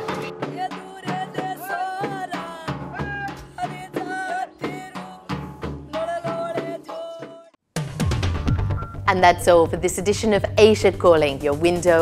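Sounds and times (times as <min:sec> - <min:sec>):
steady drum beat: 0:00.0 - 0:07.2.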